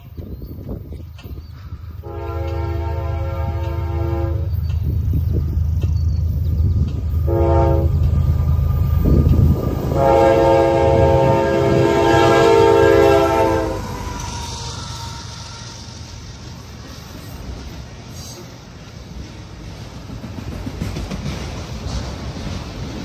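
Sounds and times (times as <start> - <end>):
locomotive rumble: 0.0 - 23.0
rail cars rushing past: 0.0 - 23.0
locomotive air horn blasts: 2.0 - 4.5, 7.2 - 8.1, 9.9 - 14.0.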